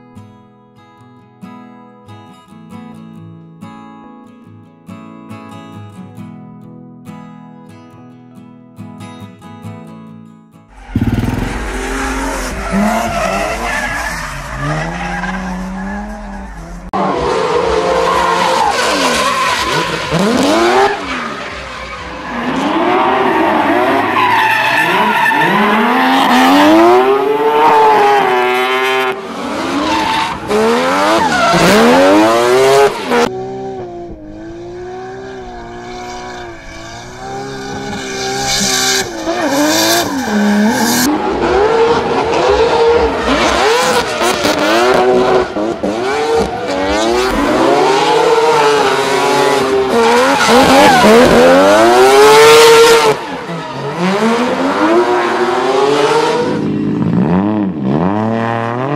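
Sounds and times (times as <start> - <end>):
tyres squealing and skidding: 10.7 - 33.3, 34.4 - 56.0
car engines revving hard: 10.7 - 58.9.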